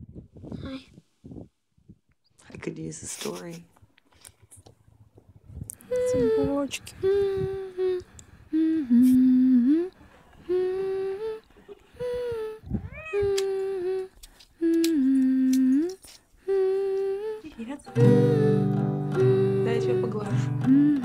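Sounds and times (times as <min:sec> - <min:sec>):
person humming a slow melody: 0:05.8 - 0:21.0.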